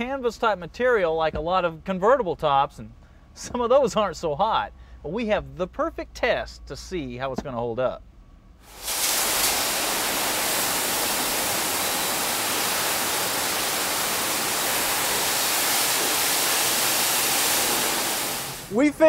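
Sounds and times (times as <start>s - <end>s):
high-pressure water jets spraying: 8.6s - 18.8s.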